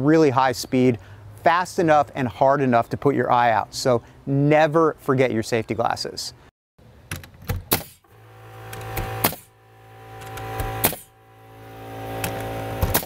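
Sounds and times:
nail gun shots into wood: 0:07.5 - 0:08.1, 0:08.8 - 0:09.5, 0:10.3 - 0:11.1, 0:12.2 - 0:13.0
steady hum: 0:07.9 - 0:13.0.

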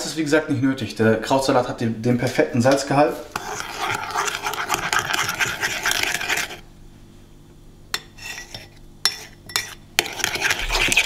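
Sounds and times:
utensil scraping a bowl: 0:03.3 - 0:06.6, 0:08.0 - 0:11.0.

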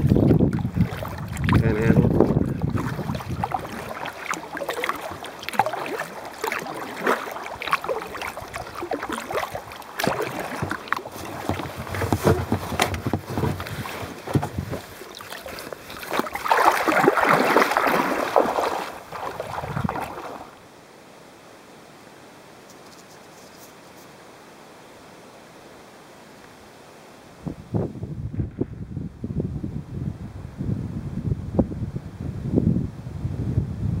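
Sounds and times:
water lapping against kayak hull: 0:00.0 - 0:20.7
rushing water: 0:00.0 - 0:22.8
faint steady hiss: 0:20.2 - 0:33.4.

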